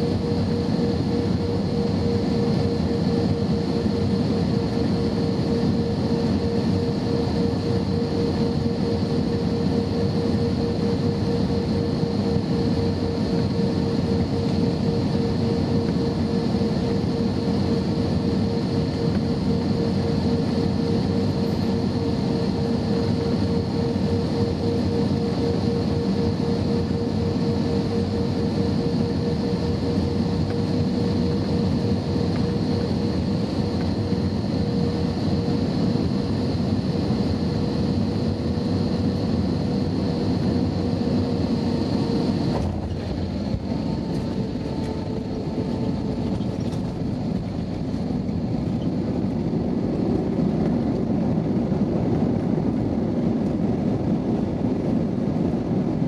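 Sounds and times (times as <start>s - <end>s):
jet engines and airflow rushing: 0.0s - 56.0s
steady hum: 0.0s - 56.0s.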